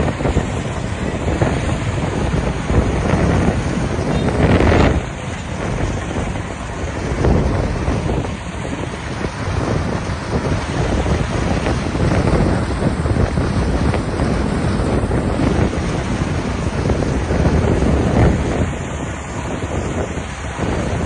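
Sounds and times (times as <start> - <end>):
combine harvester running: 0.0 - 21.0
wind buffeting microphone: 0.0 - 21.0.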